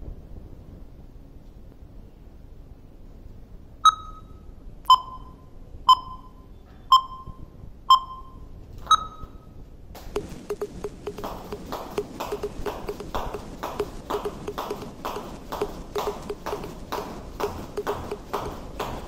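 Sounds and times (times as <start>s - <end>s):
short electronic beeps: 3.8s - 9.6s.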